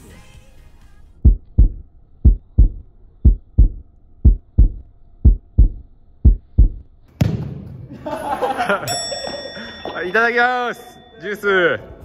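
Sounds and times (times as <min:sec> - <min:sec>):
heartbeat thumps: 0:01.2 - 0:06.9.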